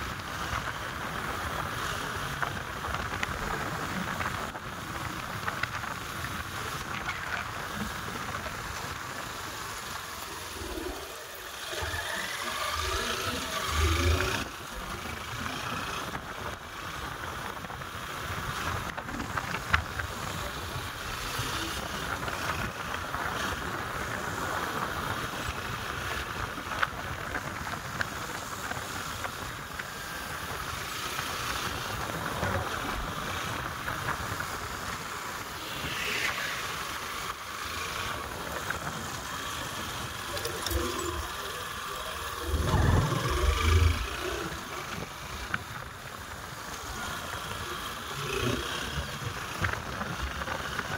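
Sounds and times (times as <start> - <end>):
wind rushing over microphone: 0.0 - 50.9
low rumble: 42.2 - 44.6.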